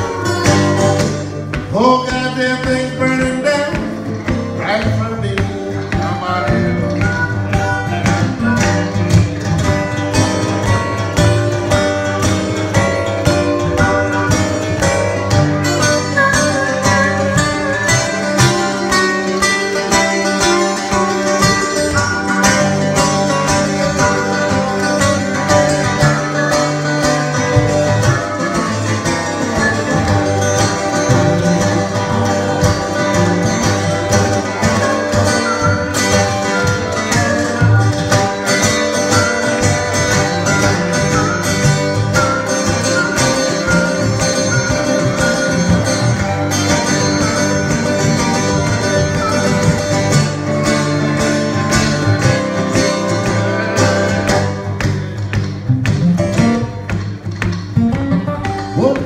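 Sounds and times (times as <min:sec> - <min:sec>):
acoustic guitars strumming: 0:00.0 - 0:59.0
harmonica playing: 0:11.7 - 0:54.6.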